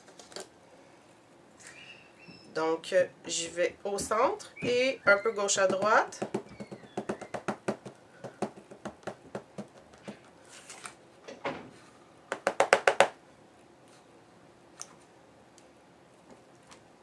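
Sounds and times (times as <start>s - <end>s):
ink pad tapping on rubber stamp: 4.6s - 10.3s, 12.3s - 13.2s.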